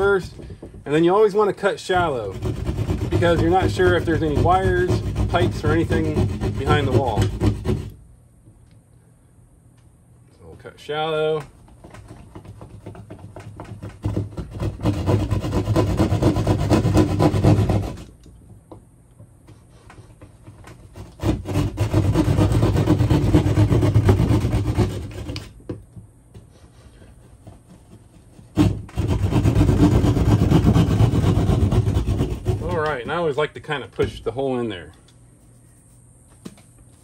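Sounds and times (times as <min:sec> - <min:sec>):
knife scraping drywall: 0:00.0 - 0:08.0, 0:11.7 - 0:18.2, 0:19.5 - 0:25.6, 0:26.4 - 0:33.4.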